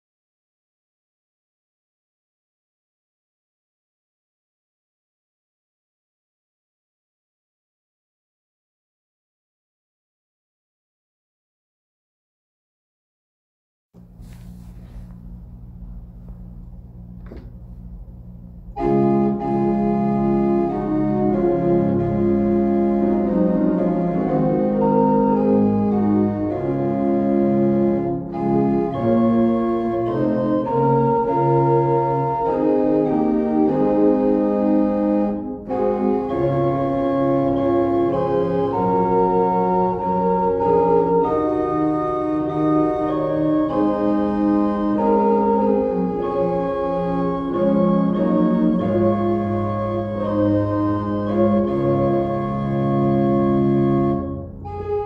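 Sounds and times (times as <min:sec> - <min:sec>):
faint low hum: 0:14.0 - 0:20.0
organ playing a hymn: 0:14.2 - 0:55.0.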